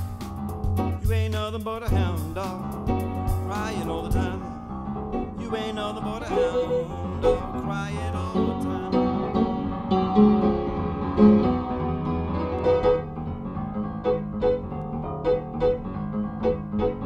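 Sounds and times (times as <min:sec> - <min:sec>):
bass line: 0:00.0 - 0:17.0
rock and roll piano: 0:00.0 - 0:17.0
wordless vocal sounds: 0:01.0 - 0:09.6.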